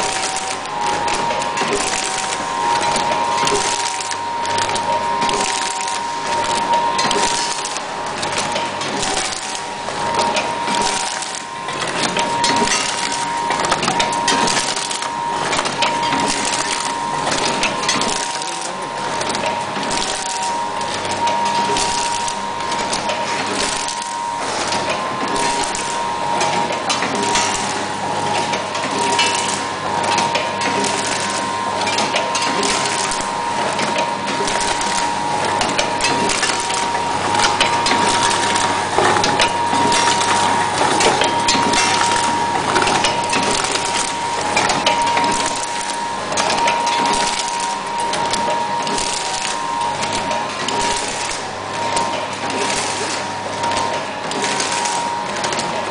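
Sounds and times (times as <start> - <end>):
high-pitched machine hum: 0.0 - 55.9
packaging machine clattering: 0.0 - 55.9.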